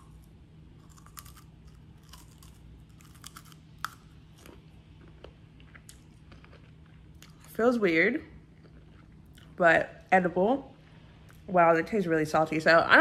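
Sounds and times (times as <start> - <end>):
crunchy snack chewing: 0.0 - 7.5, 8.6 - 9.6.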